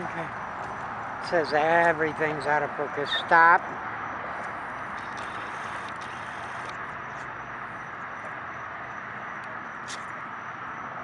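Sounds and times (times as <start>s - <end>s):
even hum: 0.0s - 11.0s.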